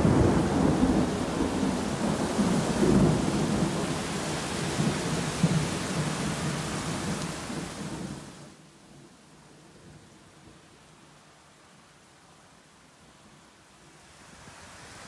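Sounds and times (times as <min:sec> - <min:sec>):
thunder rumbling: 0:00.0 - 0:08.2
heavy rain: 0:00.0 - 0:11.6.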